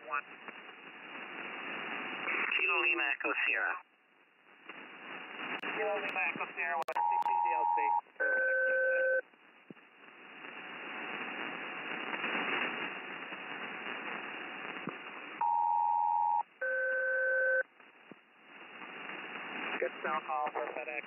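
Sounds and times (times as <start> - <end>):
radio channel hiss: 0.0 - 3.8, 4.7 - 8.0, 9.7 - 15.4, 18.5 - 21.0
two-tone radio calling tones: 6.8 - 9.2, 15.4 - 17.6.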